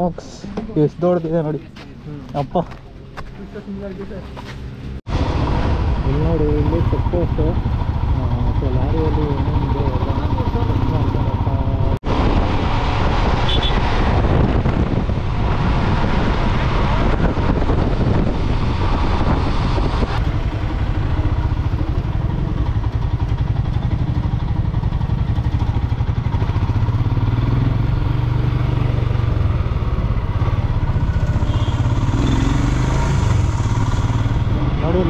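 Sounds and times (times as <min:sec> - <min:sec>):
motorcycle engine running: 0:05.8 - 0:12.0, 0:17.1 - 0:35.0
wind rushing over microphone: 0:11.4 - 0:23.2.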